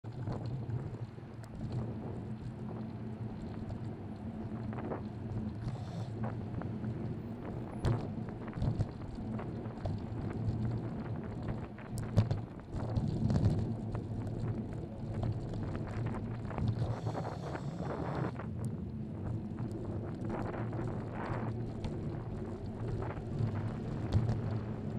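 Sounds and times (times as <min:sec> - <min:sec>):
road and traffic rumble: 0:00.0 - 0:24.9
wind buffeting microphone: 0:00.0 - 0:24.9.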